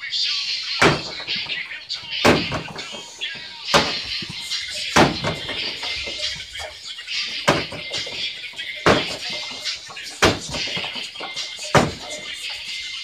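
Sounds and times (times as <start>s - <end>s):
faint music: 0.0s - 13.0s
punches hitting punching dummy: 0.8s - 1.3s, 2.2s - 2.8s, 5.0s - 5.6s, 8.9s - 9.3s, 10.2s - 10.9s, 11.8s - 12.1s.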